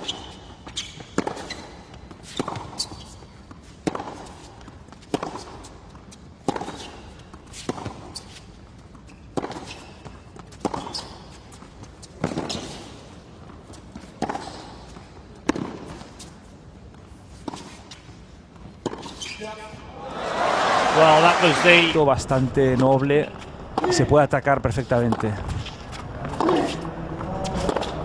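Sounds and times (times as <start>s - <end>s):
tennis ball bouncing on hard court: 0.0s - 16.4s, 17.4s - 19.7s, 25.0s - 28.0s
tennis ball hit with racquets: 1.1s - 8.2s, 9.3s - 16.4s, 25.0s - 28.0s.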